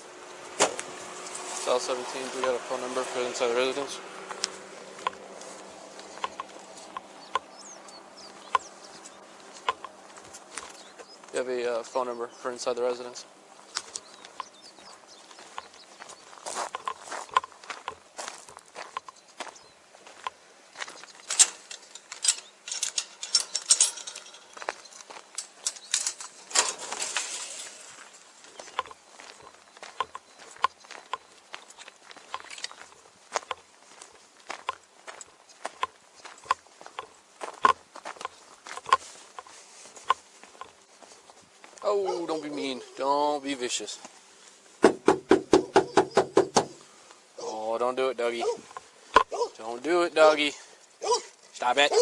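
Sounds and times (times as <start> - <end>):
bird chirping: 0.0 - 39.0, 44.9 - 52.0
footsteps on gravel: 0.0 - 47.2
metal scrape: 0.4 - 3.9, 21.3 - 24.7, 25.4 - 28.2
chain-link fence rattling: 21.2 - 28.8, 50.3 - 52.0.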